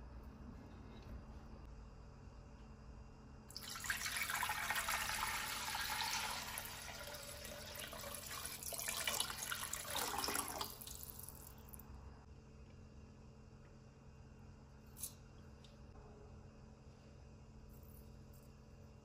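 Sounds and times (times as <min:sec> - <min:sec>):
water pouring into a pot: 0:03.5 - 0:11.5.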